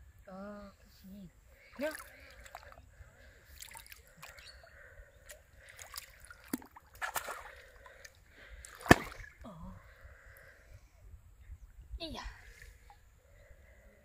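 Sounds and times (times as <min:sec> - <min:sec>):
pond water splashing: 0:01.6 - 0:09.6
loud sharp splash: 0:08.8 - 0:09.3.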